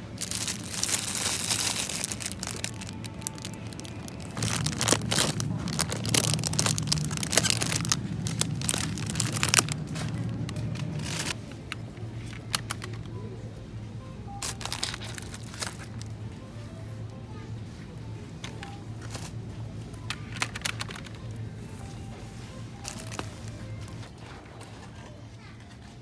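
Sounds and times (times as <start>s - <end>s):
plastic bags crinkling: 0.0s - 11.4s, 14.4s - 16.1s, 18.6s - 19.4s, 22.8s - 23.5s.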